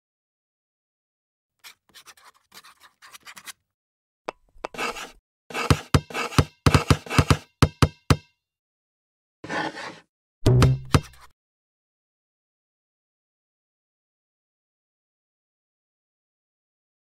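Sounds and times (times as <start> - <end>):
pencil scratching on paper: 1.6 - 3.6, 4.7 - 7.4, 9.4 - 10.1.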